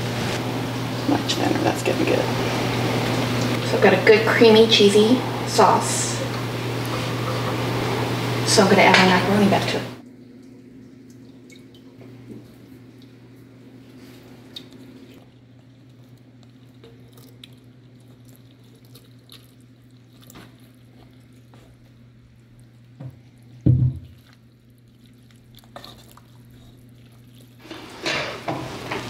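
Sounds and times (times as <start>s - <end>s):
wet squishing and scraping: 13.9s - 28.5s
loud dull knock: 23.7s - 24.0s.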